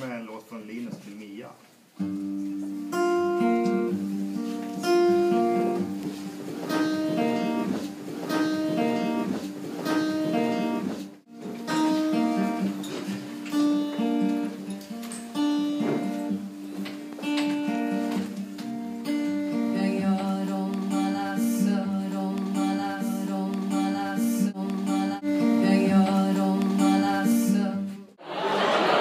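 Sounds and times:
acoustic guitar picking: 2.0 - 28.0.

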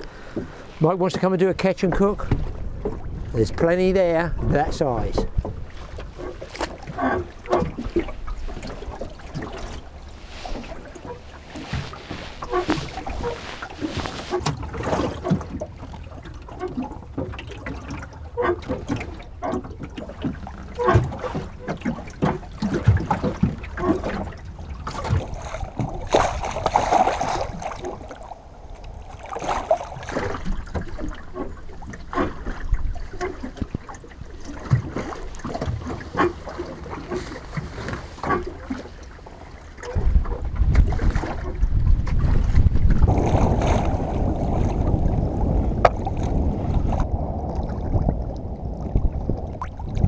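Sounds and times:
water lapping against boat hull: 0.0 - 50.0
small knocks and splashes: 4.4 - 45.2, 45.8 - 48.1.

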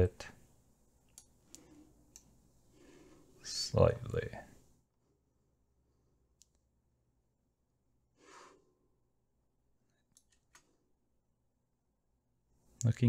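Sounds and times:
computer mouse clicks: 1.1 - 2.3, 6.4 - 6.7, 10.0 - 10.7
faint breath: 1.4 - 2.1, 2.7 - 3.4, 8.1 - 9.0.

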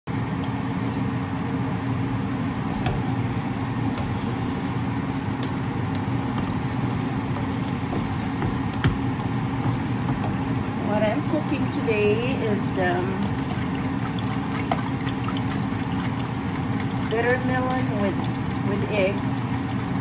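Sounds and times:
steady low hum: 0.1 - 20.0
spatula stirring in frying pan: 2.5 - 20.0
spatula tapping pan: 2.8 - 10.7.

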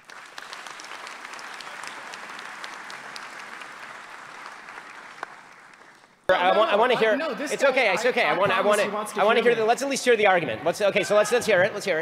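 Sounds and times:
audience applauding: 0.0 - 6.3.

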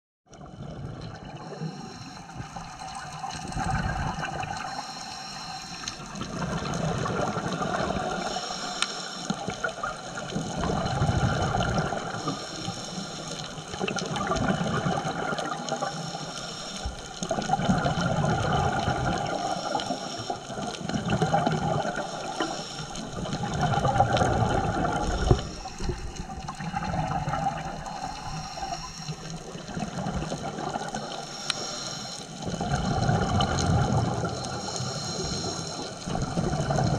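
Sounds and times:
exhaled bubbles: 0.4 - 4.9, 5.9 - 8.5, 9.3 - 31.7, 32.3 - 36.9
diver breathing through regulator: 1.4 - 2.9, 4.5 - 6.4, 8.0 - 9.7, 11.5 - 13.6, 15.4 - 17.4, 19.1 - 20.8, 21.8 - 36.9.

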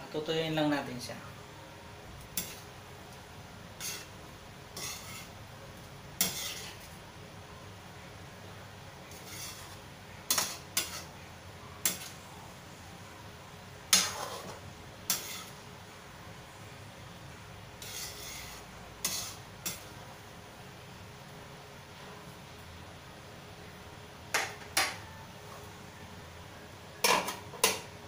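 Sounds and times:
bottles and cookware clinking: 27.0 - 27.9.

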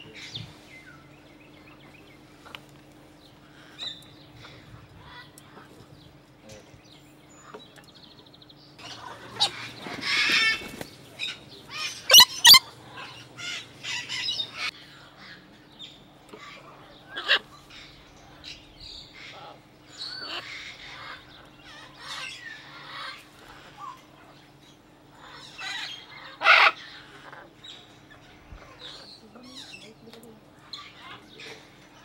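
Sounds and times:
faint steady hum: 0.0 - 32.0
macaw squawking: 11.8 - 14.7, 25.2 - 27.4.

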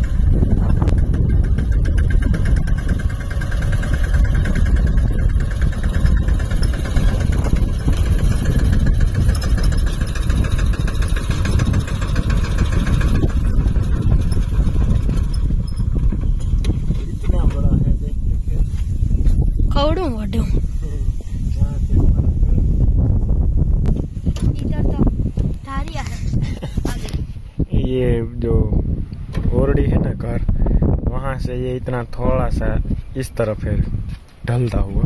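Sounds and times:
tractor diesel engine running: 0.0 - 26.1.

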